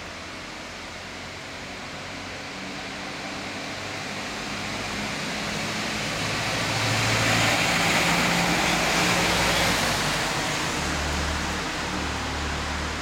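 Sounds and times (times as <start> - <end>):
tow truck driving past: 4.2 - 13.0.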